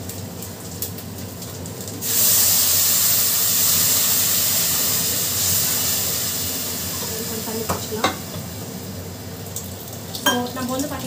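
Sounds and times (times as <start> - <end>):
water hissing in hot pot: 0.0 - 11.0.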